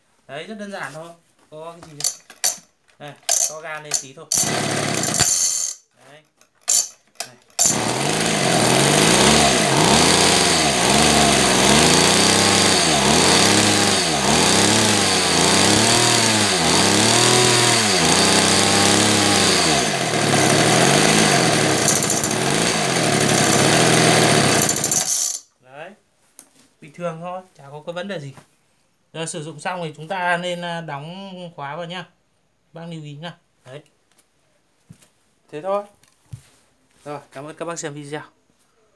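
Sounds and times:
brushcutter engine revving: 0:03.3 - 0:05.7, 0:07.6 - 0:25.4.

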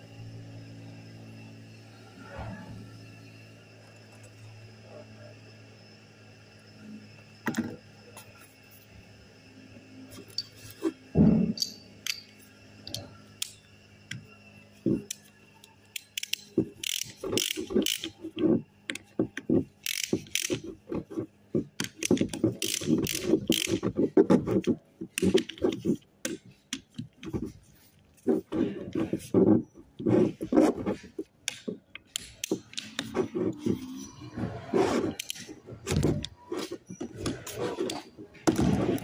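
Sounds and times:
ratchet wrench clicking: 0:11.6 - 0:13.6, 0:15.1 - 0:18.2, 0:19.8 - 0:20.6, 0:21.8 - 0:23.8, 0:31.4 - 0:33.1.

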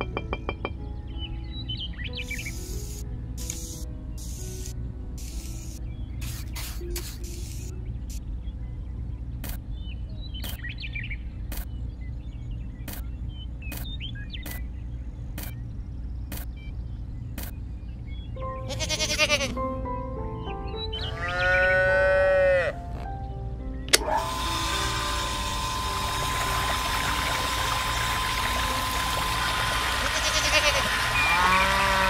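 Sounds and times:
background music: 0:00.0 - 0:10.6, 0:18.1 - 0:32.0
animal bleating: 0:18.7 - 0:19.6, 0:21.0 - 0:22.8, 0:30.0 - 0:32.0.

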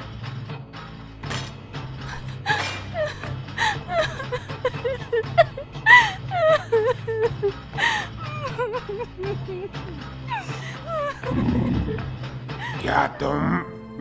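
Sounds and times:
background music: 0:00.0 - 0:14.0
woman sobbing and whimpering: 0:02.0 - 0:13.2.

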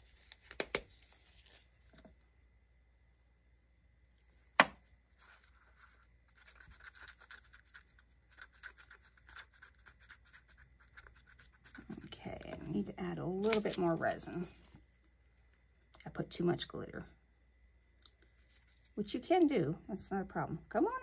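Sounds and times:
toothpick scraping paper cup: 0:05.2 - 0:12.7.

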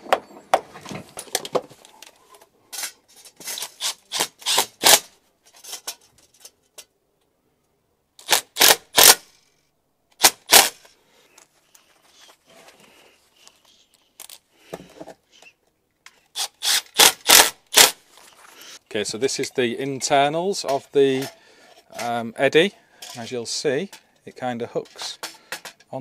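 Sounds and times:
cordless drill driver: 0:03.6 - 0:05.1, 0:08.2 - 0:09.3, 0:10.2 - 0:10.9, 0:16.4 - 0:18.0.

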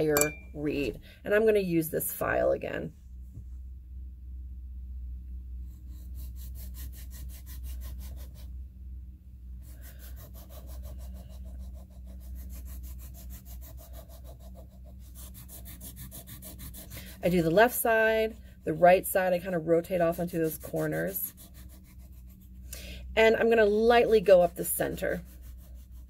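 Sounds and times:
file rasping on a reed: 0:05.8 - 0:08.5, 0:09.6 - 0:19.2, 0:20.1 - 0:22.6, 0:25.0 - 0:26.0.

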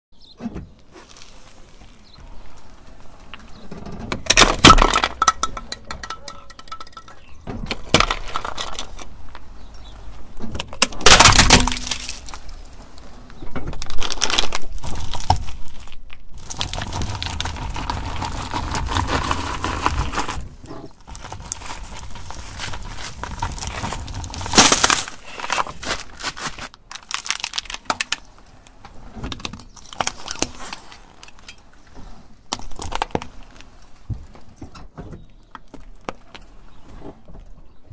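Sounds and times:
car tyre rolling on asphalt: 0:00.2 - 0:05.5, 0:11.8 - 0:27.5
objects cracking and crunching: 0:01.0 - 0:09.6, 0:10.4 - 0:34.6.

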